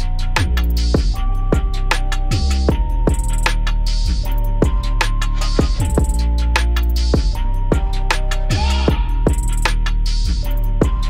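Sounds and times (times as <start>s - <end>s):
electronic beat music: 0.0s - 11.0s.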